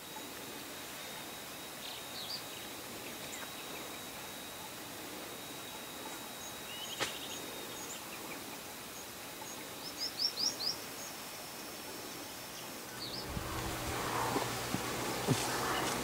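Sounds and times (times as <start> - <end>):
faint outdoor hiss: 0.0 - 16.0
thin steady high tone: 0.0 - 16.0
wild birds chirping: 11.8 - 16.0.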